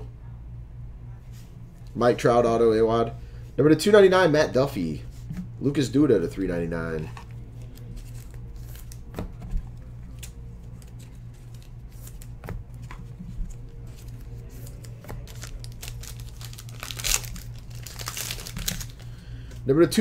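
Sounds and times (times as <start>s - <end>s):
steady low hum: 0.0s - 20.0s
trading cards clicking and rustling: 6.9s - 19.6s
foil wrapper crinkling: 10.1s - 19.3s.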